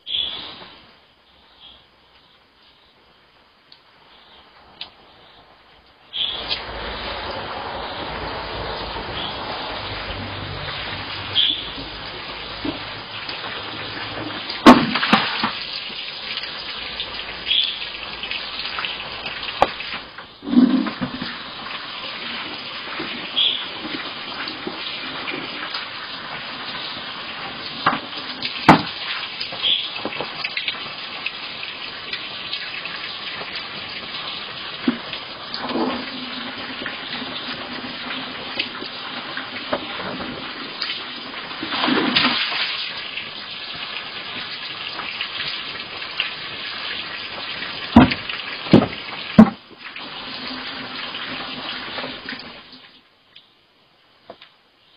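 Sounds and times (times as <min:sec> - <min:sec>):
steady hiss: 0:00.0 - 0:54.9
water pouring and splashing: 0:06.1 - 0:53.1
sharp knocks: 0:28.7 - 0:29.0.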